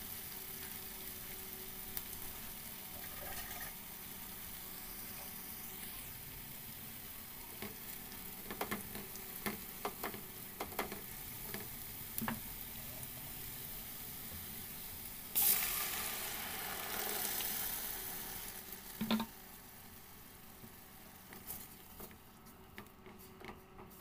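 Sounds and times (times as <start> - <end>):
vegetables sizzling in oil: 0.0 - 22.8
loud sizzle of puree: 0.0 - 24.0
spatula scraping and tapping pot: 8.4 - 12.4.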